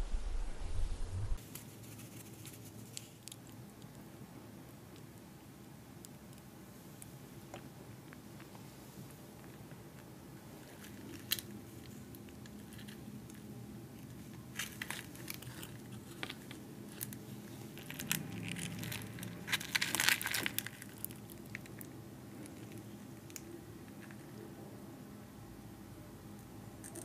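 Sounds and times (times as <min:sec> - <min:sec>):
fried chicken crunching: 0:16.9 - 0:21.9.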